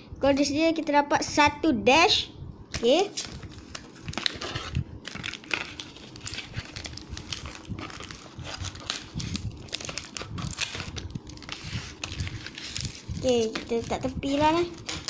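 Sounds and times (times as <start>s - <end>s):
plastic packets crinkling: 3.1s - 15.0s.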